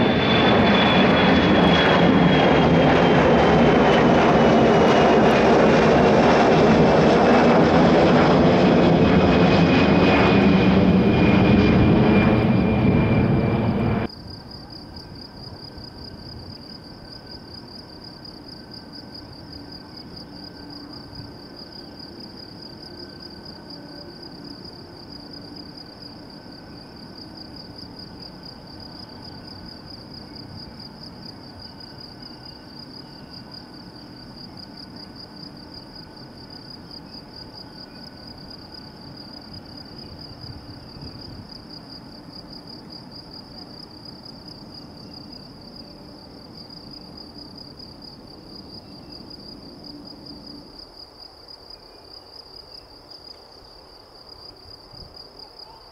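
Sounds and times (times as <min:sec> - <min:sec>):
jet engines rumbling: 0:00.0 - 0:14.1
insects trilling: 0:00.0 - 0:55.9.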